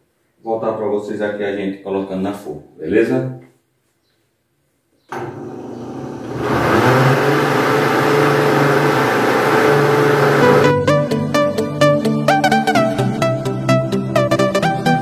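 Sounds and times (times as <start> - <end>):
blender motor running: 5.1 - 10.8.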